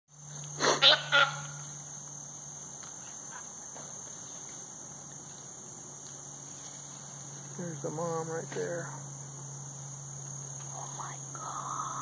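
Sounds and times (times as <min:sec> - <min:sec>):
high-pitched insect drone: 0:00.1 - 0:12.0
fawn distress bleats: 0:00.6 - 0:01.5.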